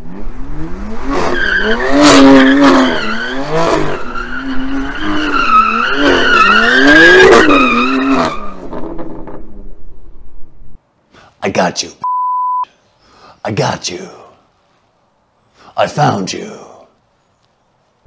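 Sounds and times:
car engine revving: 0.0 - 9.7
tyres squealing: 1.2 - 8.6.

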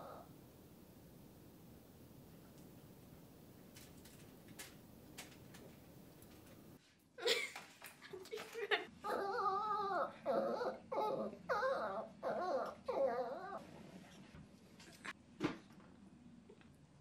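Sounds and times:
small dog whining: 0.0 - 0.3, 9.0 - 13.6.

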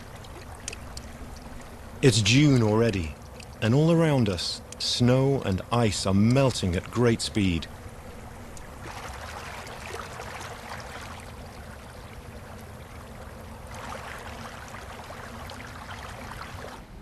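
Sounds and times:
meltwater trickling: 0.0 - 16.9.

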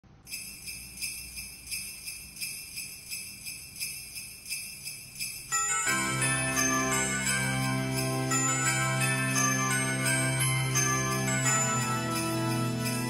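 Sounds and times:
christmas-style music track: 0.3 - 13.0
sleigh bells jingling: 0.3 - 13.0.

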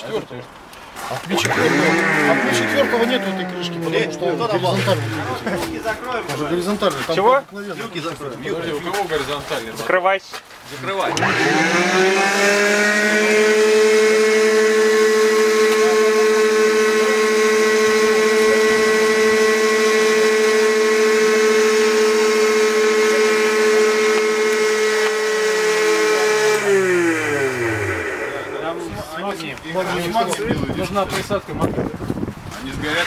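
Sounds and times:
electric motor whining: 1.2 - 6.6, 11.0 - 29.2.

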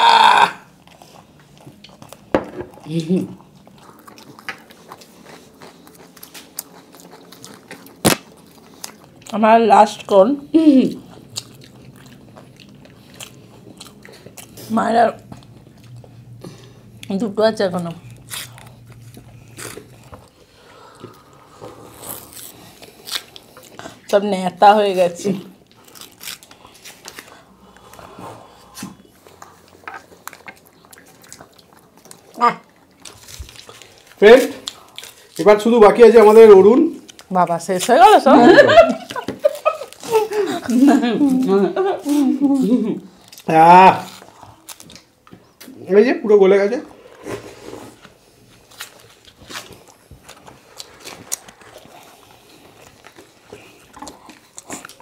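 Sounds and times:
plastic wrappers crinkling: 32.9 - 36.3.

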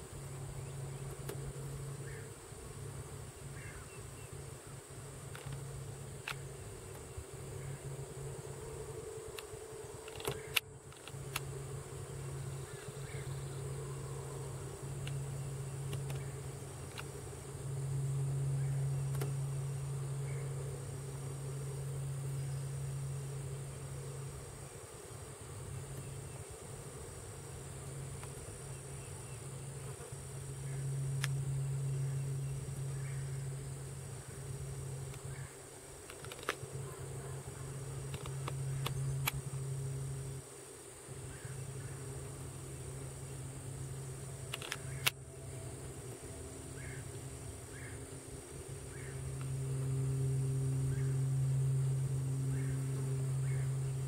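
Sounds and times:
high-pitched hum: 0.0 - 54.0
low insect buzzing: 0.0 - 54.0
faint clicks: 44.5 - 45.2.

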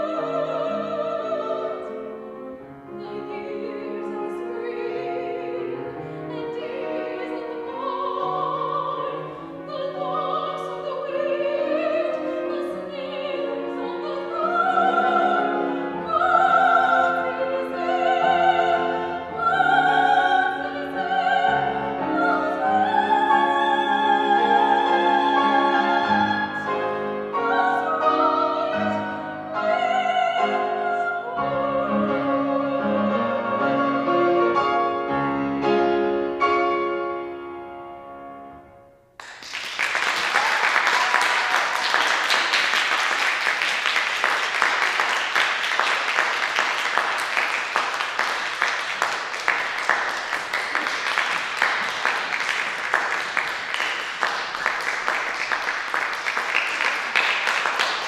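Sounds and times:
woman singing classical song: 0.0 - 34.8
grand piano: 0.0 - 58.0
audience applause: 39.2 - 58.0.

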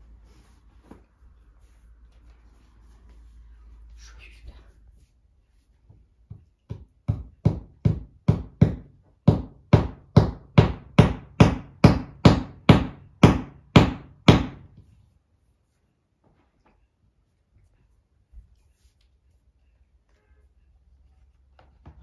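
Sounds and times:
hammer hitting nail: 6.7 - 14.7.

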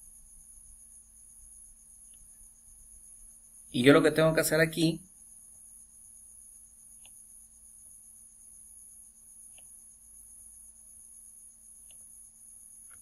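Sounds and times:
computer mouse clicks: 9.5 - 9.8, 11.8 - 12.1.

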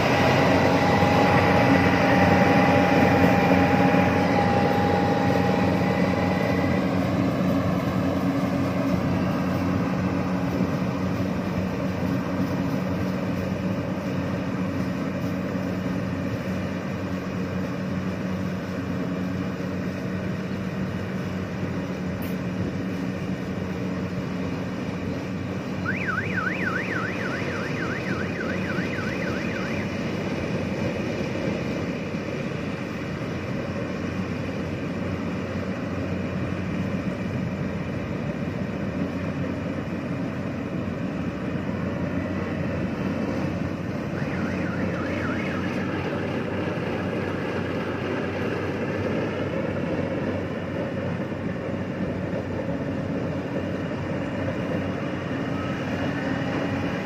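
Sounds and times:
combine harvester running: 0.0 - 57.0.

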